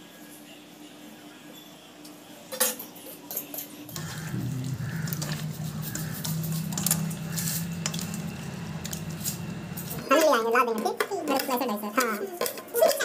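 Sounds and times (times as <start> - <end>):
steady low hum: 3.8 - 10.2.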